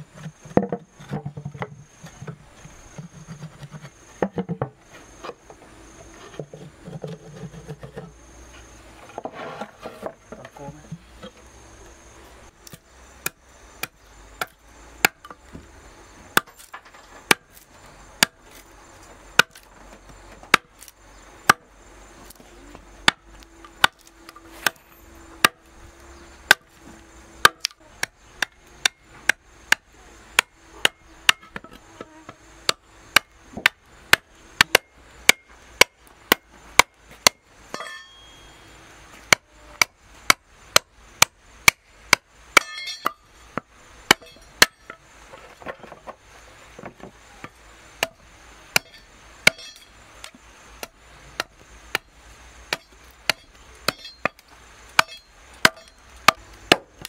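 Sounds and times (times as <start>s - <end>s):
hand tool chopping wooden board: 20.3s - 21.6s, 23.0s - 24.8s, 25.4s - 25.6s, 30.4s - 38.0s, 52.7s - 57.0s.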